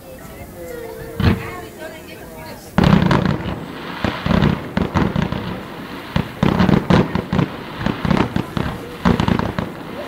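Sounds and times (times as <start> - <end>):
fireworks crackling: 0.0 - 10.0
fireworks bangs: 0.7 - 10.0.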